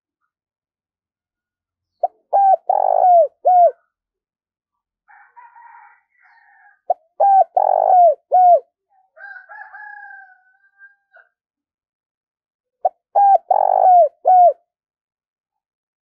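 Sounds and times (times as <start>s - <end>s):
dove cooing: 2.0s - 3.9s, 6.2s - 8.7s, 12.8s - 14.6s.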